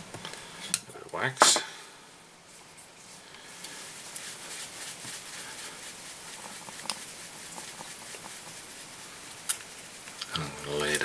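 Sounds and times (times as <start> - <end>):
scratchy rubbing of wax on thread: 3.5 - 11.0.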